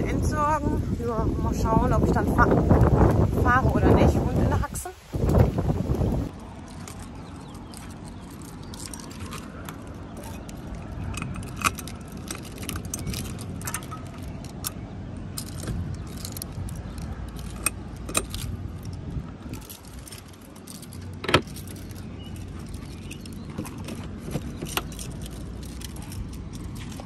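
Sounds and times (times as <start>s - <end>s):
low steady rumble: 0.0s - 27.0s
keys jangling in a lock: 6.6s - 27.0s.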